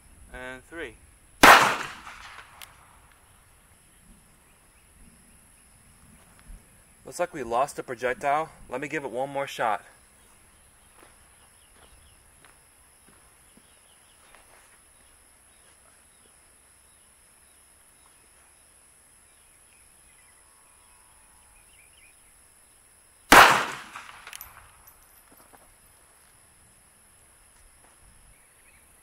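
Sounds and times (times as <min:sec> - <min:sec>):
pistol shot: 0:01.4 - 0:02.9, 0:23.3 - 0:24.7.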